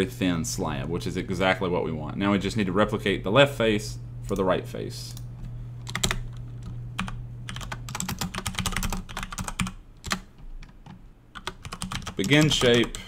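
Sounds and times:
typing on keyboard: 5.8s - 13.0s.

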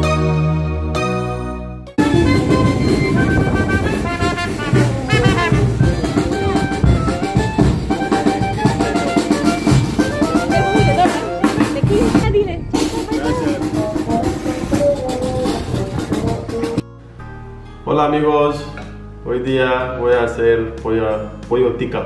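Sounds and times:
wind instrument melody: 0.0s - 18.7s
bass drum beats: 2.0s - 16.8s.

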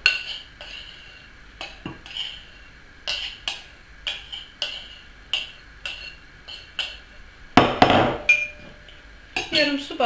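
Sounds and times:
spoon clinking on glass bowl: 8.2s - 8.7s.

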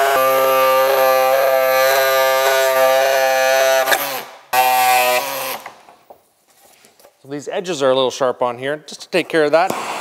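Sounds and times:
pneumatic air tool whine: 0.0s - 5.8s.

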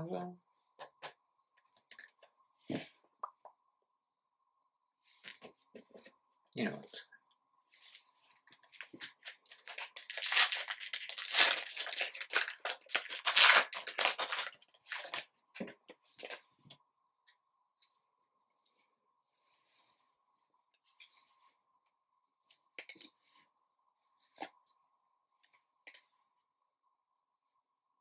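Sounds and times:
foil pack tearing and crinkling: 8.8s - 15.3s.

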